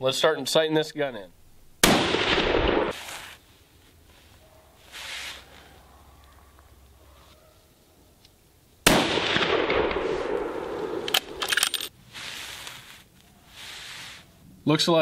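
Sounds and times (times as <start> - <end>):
rifle shot with echo: 1.8 - 3.0, 8.8 - 11.5.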